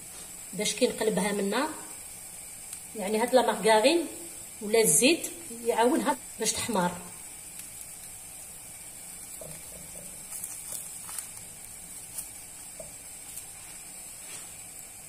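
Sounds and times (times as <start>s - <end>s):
crepe sizzling in a pan: 0.0s - 15.0s
brush tapping: 9.4s - 11.3s, 12.1s - 13.8s.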